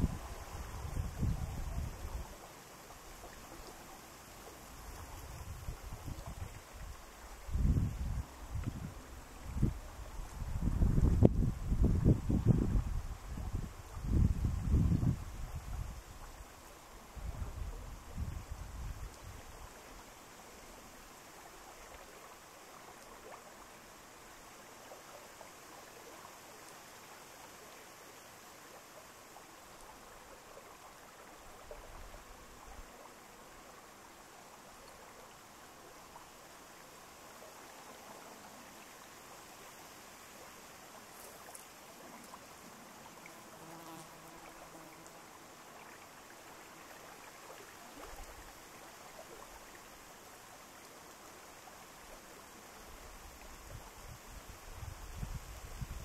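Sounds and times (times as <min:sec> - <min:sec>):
soft steady hiss: 0:00.0 - 0:56.0
fly buzzing: 0:42.2 - 0:45.3.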